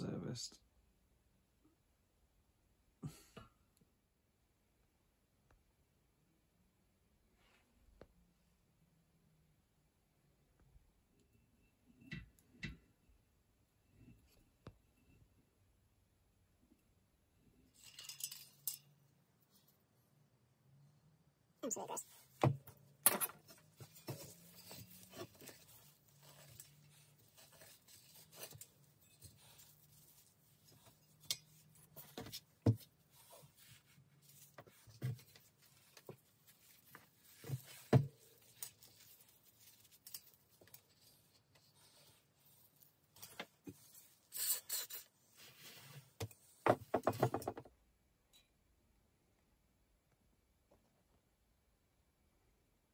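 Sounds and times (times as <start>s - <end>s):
scraping and rubbing metal hub: 23.2s - 42.5s.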